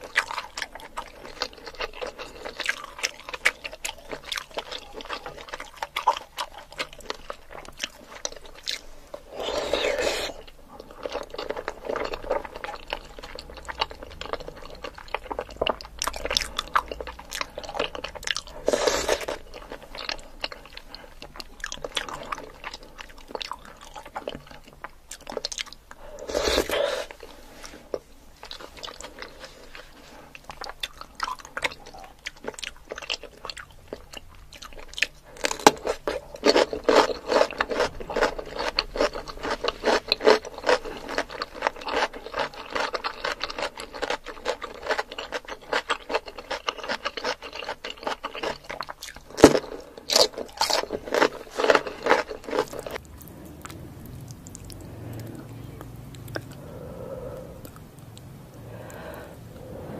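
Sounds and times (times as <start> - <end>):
crisp crunching of cucumber: 0.0 - 56.6
wet chewing and smacking: 0.0 - 59.8
slurping: 8.7 - 13.5, 26.1 - 28.0.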